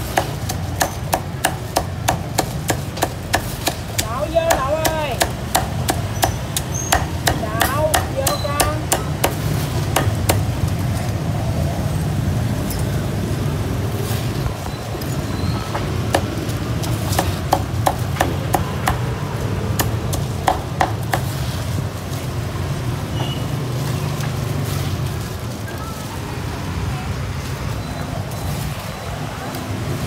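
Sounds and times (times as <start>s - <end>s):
cleaver chopping on a block: 0.0s - 10.5s, 16.1s - 19.1s, 19.7s - 21.3s.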